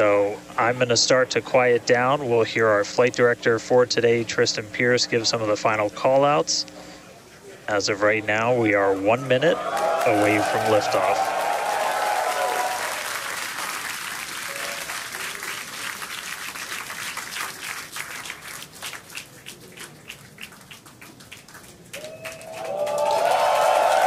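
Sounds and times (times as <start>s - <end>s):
crowd applauding: 9.6s - 24.0s.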